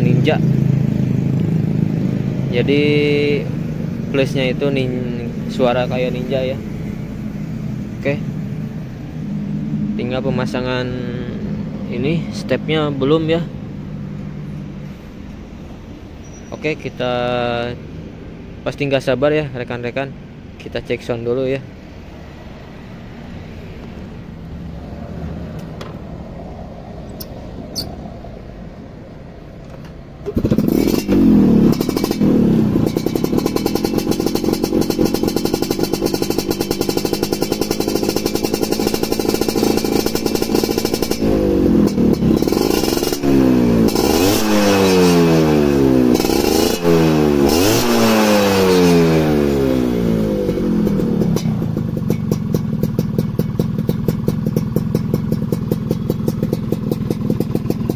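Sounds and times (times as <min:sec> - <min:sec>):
motorcycle engine idling: 0:00.0 - 0:10.6, 0:30.2 - 0:47.5, 0:49.3 - 0:57.9
two-stroke engine starting: 0:30.2 - 0:45.1
engine revving: 0:30.3 - 0:53.0.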